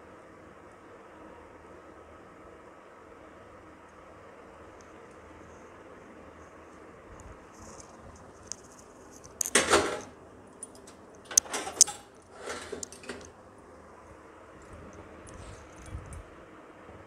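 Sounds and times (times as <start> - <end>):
kitchen utensils clattering: 11.3 - 13.2.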